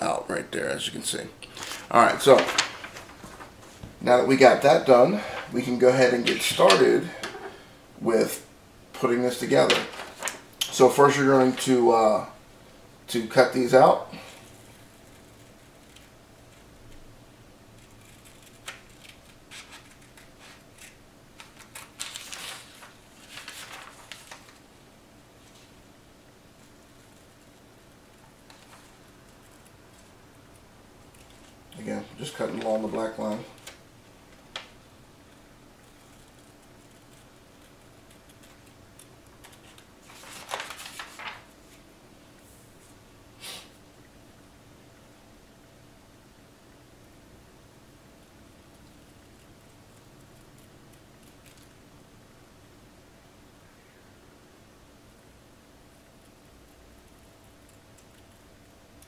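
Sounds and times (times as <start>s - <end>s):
paper rustling: 1.5s - 4.0s, 9.3s - 11.7s, 17.8s - 24.6s, 28.1s - 30.1s, 31.1s - 34.7s, 35.8s - 41.8s.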